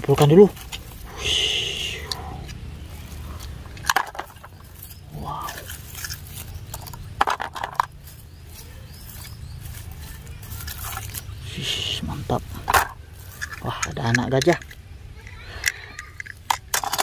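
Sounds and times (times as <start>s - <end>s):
plastic toy pieces clicking: 3.7s - 4.6s, 5.5s - 7.9s, 12.6s - 17.0s.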